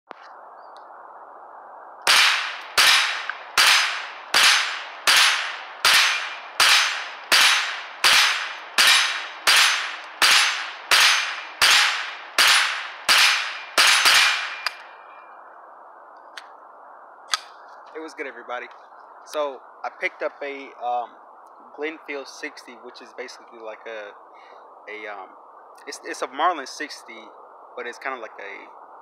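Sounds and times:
rifle shots: 2.1s - 14.8s.

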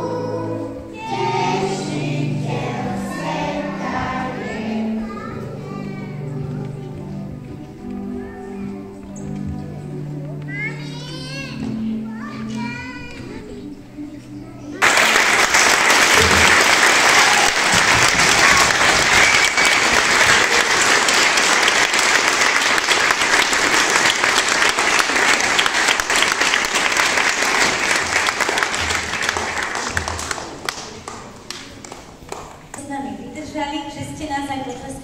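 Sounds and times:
audience applauding: 14.8s - 32.7s.

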